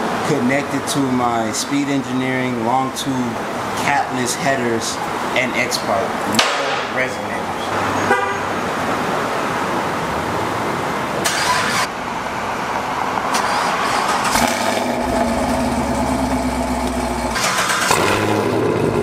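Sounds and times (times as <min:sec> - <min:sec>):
car engine starting and idling: 0:11.0 - 0:19.0.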